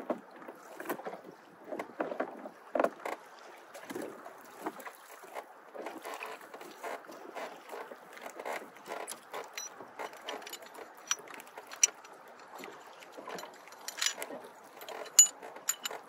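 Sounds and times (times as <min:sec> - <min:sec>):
waves lapping against hull: 0:00.0 - 0:16.0
anchor chain clinking: 0:08.9 - 0:16.0.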